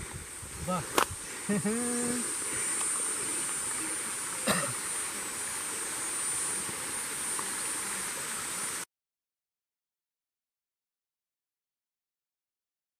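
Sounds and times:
insects buzzing: 0.0 - 8.9
stream water rushing: 0.0 - 8.9
person clearing throat: 4.4 - 4.8.

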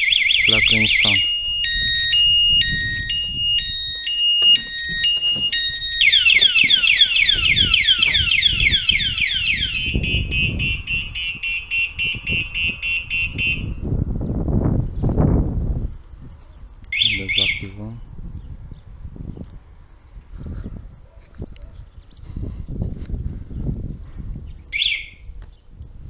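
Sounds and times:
motorcycle alarm siren: 0.0 - 14.0, 16.9 - 17.8, 24.7 - 25.3.

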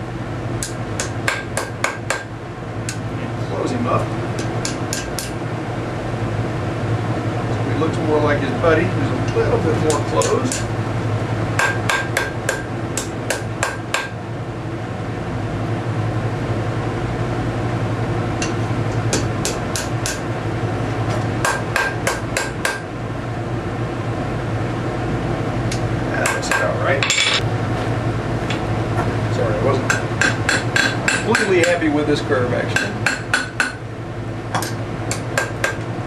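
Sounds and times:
hammer striking steel on anvil: 0.6 - 2.3, 4.4 - 5.4, 11.6 - 14.2, 18.4 - 20.2, 21.4 - 22.8, 26.2 - 27.4, 29.9 - 31.8, 32.8 - 33.8.

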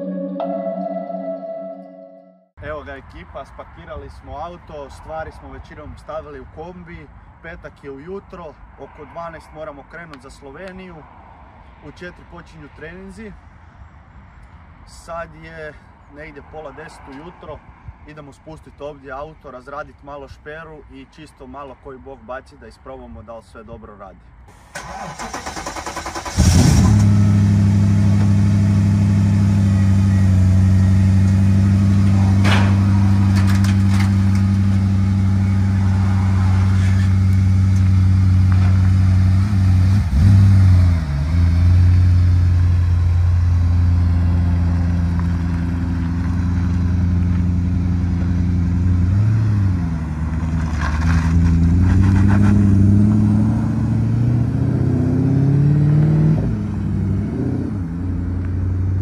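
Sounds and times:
car engine idling and revving: 24.5 - 59.0.

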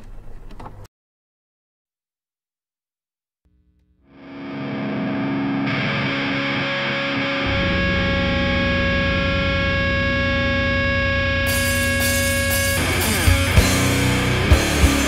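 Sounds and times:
distorted electric guitar chord: 3.5 - 15.0
low distorted held note: 3.5 - 15.0.

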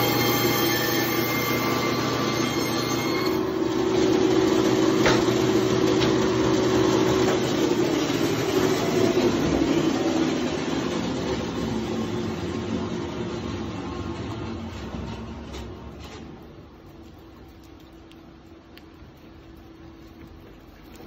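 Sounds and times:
meat band saw cutting: 0.0 - 12.6.

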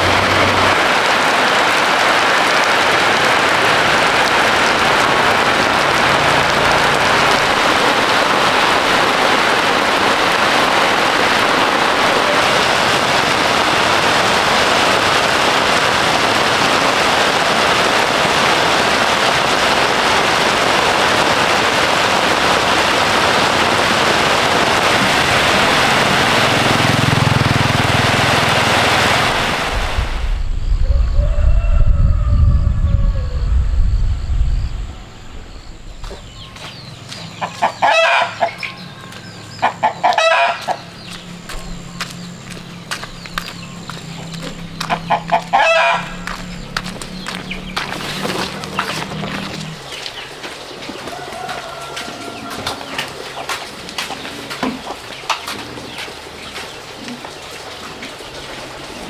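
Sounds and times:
heavy rain pouring: 0.0 - 59.0
low rumble: 29.3 - 36.6.

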